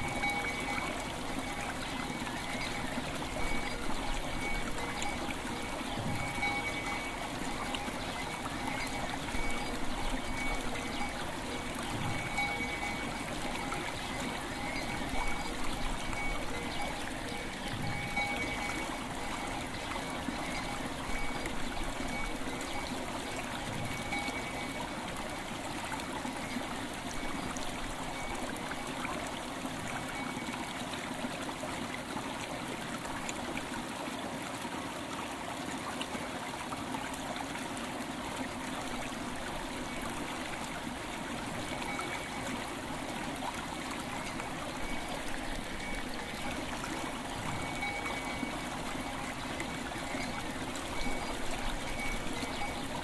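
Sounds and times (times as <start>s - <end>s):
faint ringing bell tones: 0.0s - 25.0s, 26.4s - 29.1s, 30.0s - 30.7s, 44.0s - 53.0s
river water flowing: 0.0s - 53.0s.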